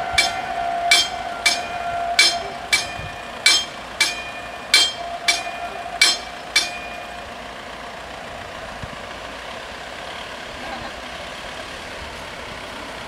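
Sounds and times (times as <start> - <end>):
level crossing warning bells: 0.0 - 9.2
low engine hum from traffic: 0.0 - 13.0.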